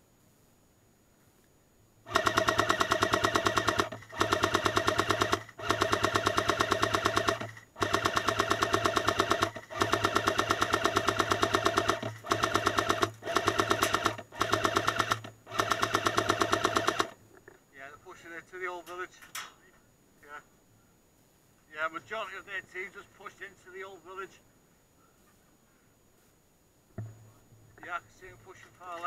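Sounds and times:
toy machine gun firing bursts: 2.1 - 17.2.

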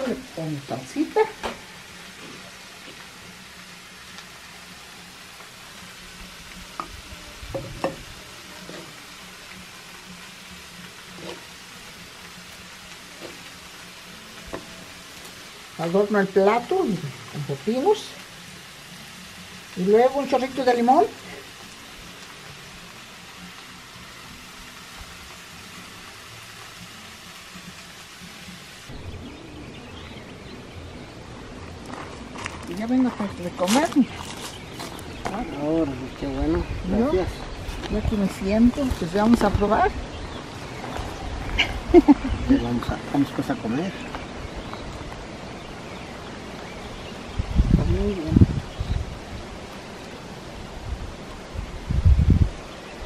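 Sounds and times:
food sizzling: 0.0 - 53.0
quiet outdoor background: 0.0 - 53.0.

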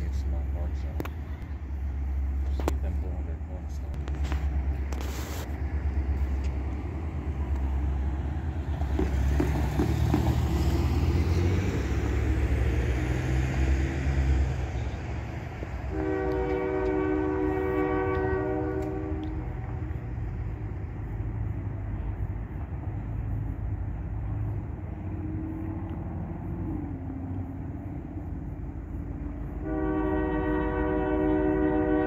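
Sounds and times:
train horn chord blast: 15.7 - 19.8, 29.6 - 32.0.

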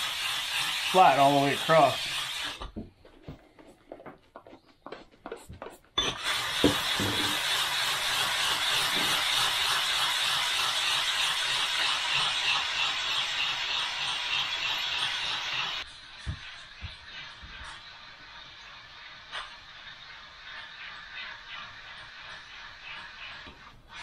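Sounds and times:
spray bottle squirts: 6.2 - 24.0
stone scraping on diamond plate: 6.6 - 7.4.

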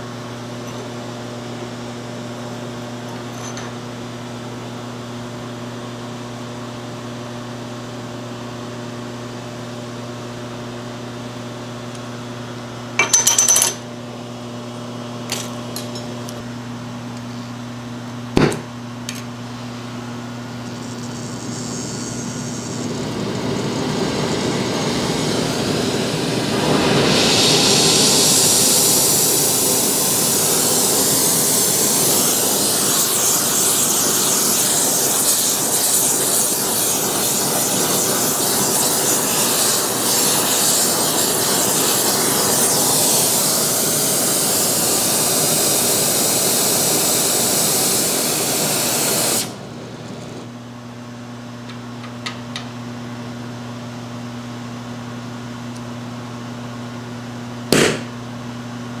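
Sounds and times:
brazing torch hissing: 20.5 - 50.5.

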